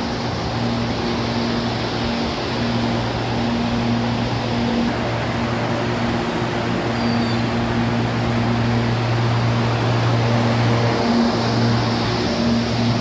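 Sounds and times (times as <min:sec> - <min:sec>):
air-conditioning units humming: 0:00.0 - 0:13.0.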